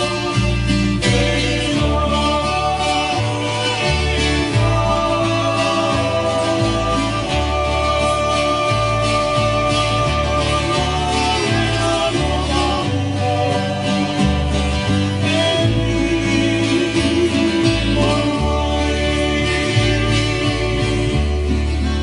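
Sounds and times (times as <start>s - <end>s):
acoustic guitars playing: 0.0s - 22.0s
bass line: 0.0s - 22.0s
man singing: 0.0s - 22.0s.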